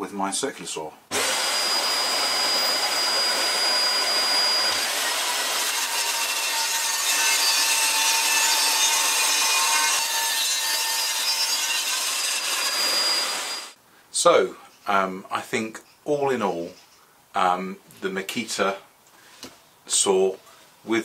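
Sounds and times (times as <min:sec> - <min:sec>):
circular saw cutting wood: 0:01.1 - 0:13.8.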